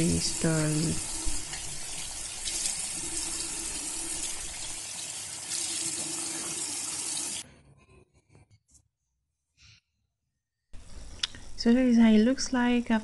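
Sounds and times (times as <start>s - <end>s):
tap water running into a sink: 0.0s - 7.4s.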